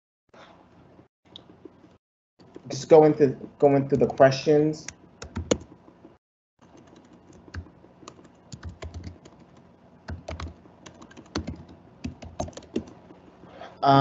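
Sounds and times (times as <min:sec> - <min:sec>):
computer keys typing: 0:05.2 - 0:05.8, 0:06.6 - 0:13.0.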